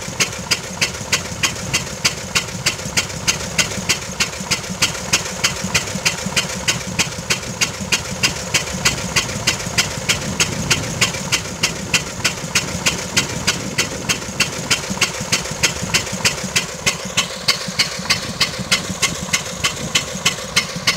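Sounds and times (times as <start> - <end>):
gasoline engine popping steadily: 0.0 - 20.9.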